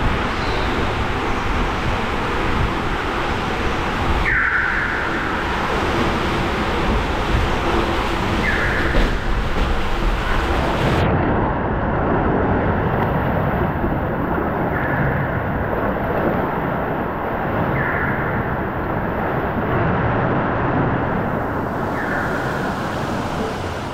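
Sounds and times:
water rushing through slide tube: 0.0s - 11.2s, 12.2s - 23.9s.

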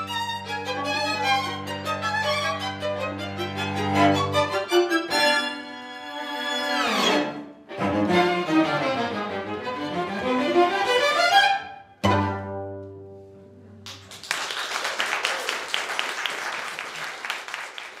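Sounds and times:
string quartet playing: 0.0s - 13.5s
audience applause: 13.8s - 18.0s.

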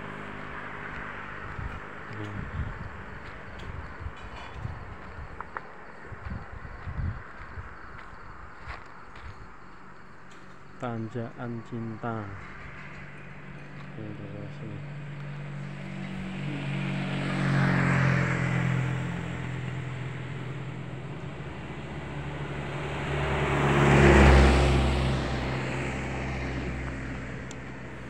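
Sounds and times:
truck with deep engine note: 0.0s - 28.0s
vehicle driving past: 11.6s - 28.0s.

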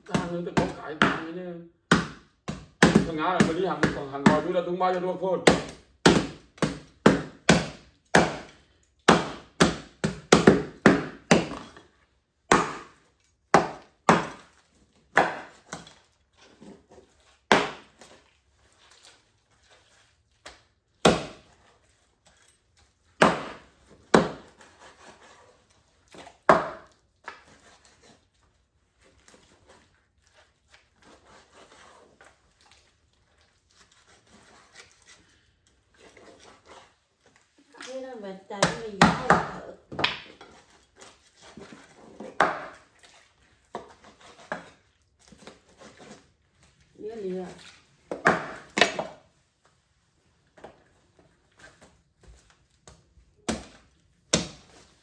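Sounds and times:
knife chopping on wooden board: 0.0s - 4.6s, 5.4s - 11.7s, 12.5s - 14.5s, 15.1s - 16.0s, 17.5s - 18.1s, 21.0s - 21.4s, 23.2s - 25.1s, 26.5s - 27.4s, 38.6s - 40.4s, 41.5s - 42.9s, 48.1s - 49.2s, 53.5s - 54.8s.

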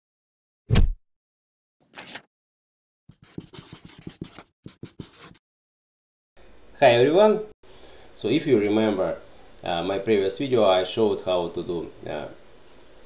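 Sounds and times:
marker scratching on paper: 3.1s - 5.4s.

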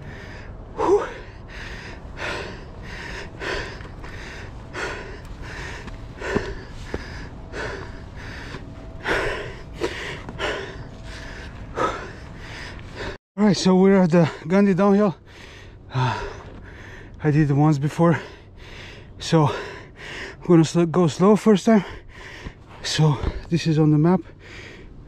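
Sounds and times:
person panting heavily: 0.0s - 13.2s, 14.2s - 17.2s, 17.8s - 20.5s, 21.6s - 23.5s, 24.2s - 25.0s.

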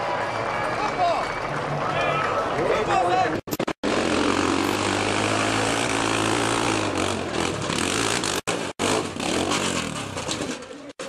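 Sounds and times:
dirt bike engine running hard: 3.8s - 10.0s.

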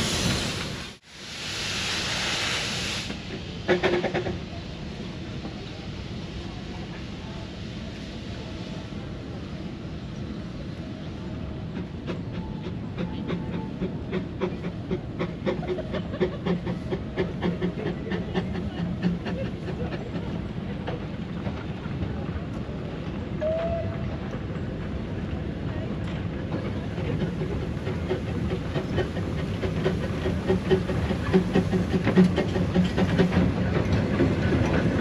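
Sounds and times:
steam train clattering past: 0.0s - 35.0s.

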